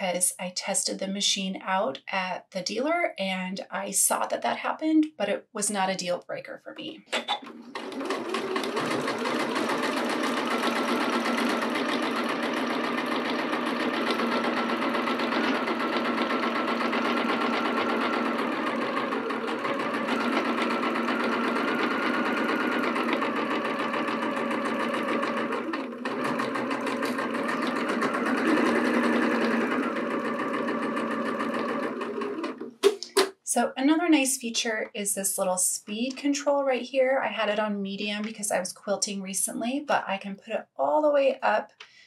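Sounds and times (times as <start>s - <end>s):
sewing machine running: 7.4s - 32.8s.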